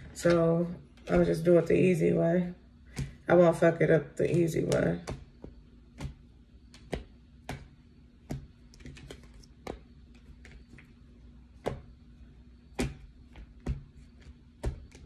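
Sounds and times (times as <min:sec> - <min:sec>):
cards clicking and tapping on table: 0:04.7 - 0:11.0, 0:11.6 - 0:11.9, 0:12.8 - 0:15.0.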